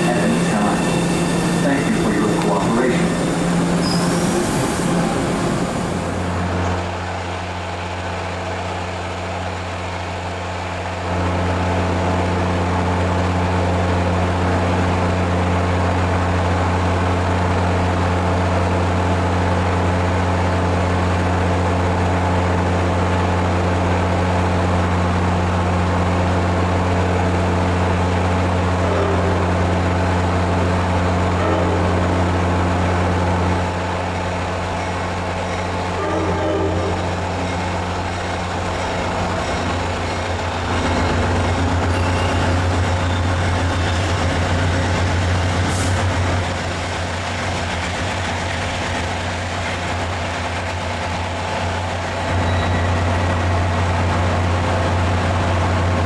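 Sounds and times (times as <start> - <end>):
diesel locomotive humming: 0.0 - 56.0.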